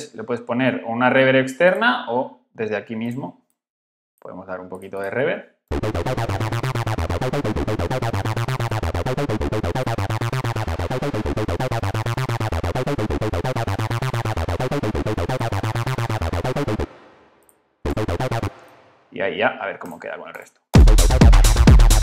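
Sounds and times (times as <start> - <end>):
acid techno synth lead: 5.7 - 17.0, 17.9 - 18.6, 20.8 - 22.0.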